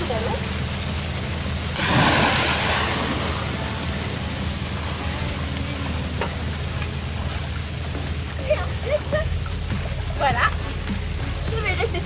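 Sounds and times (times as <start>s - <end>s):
rain hissing on sea: 0.0s - 12.0s
person splashing into water: 1.8s - 3.6s.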